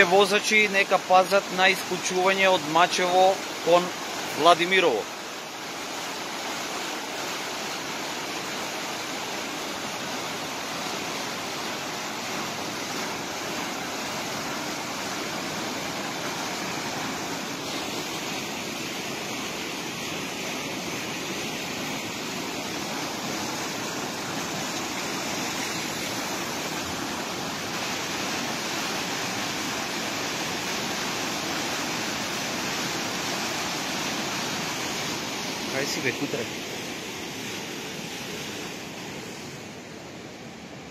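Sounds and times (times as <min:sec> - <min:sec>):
rushing turbulent river water: 0:00.0 - 0:40.9.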